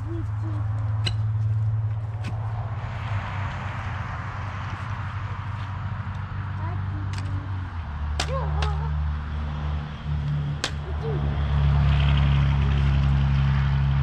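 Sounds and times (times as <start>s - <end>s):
engine running: 0.0s - 14.0s.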